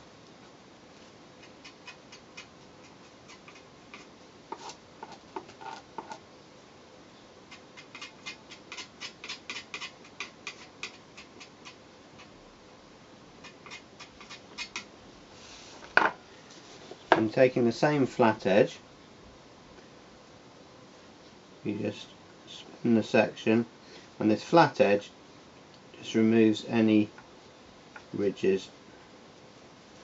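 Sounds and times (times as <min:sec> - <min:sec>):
stick tapping and scraping on pole: 0:01.4 - 0:06.2, 0:07.5 - 0:12.3.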